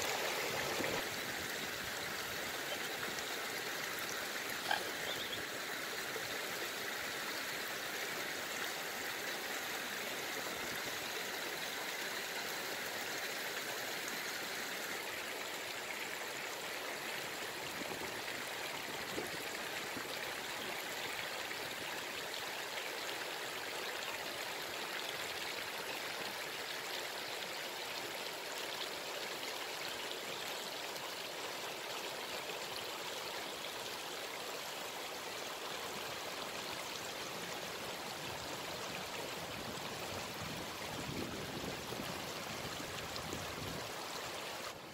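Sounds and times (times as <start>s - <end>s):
water splashing over rocks: 0.0s - 6.8s.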